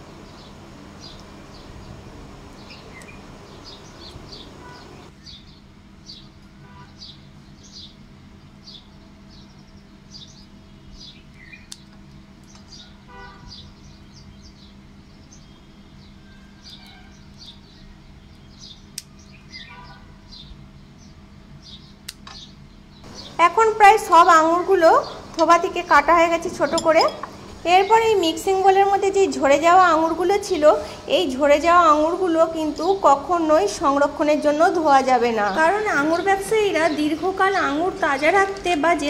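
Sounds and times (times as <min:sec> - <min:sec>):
small bird chirping: 0:02.6 - 0:08.0, 0:08.6 - 0:28.3
low steady hum: 0:20.1 - 0:39.0.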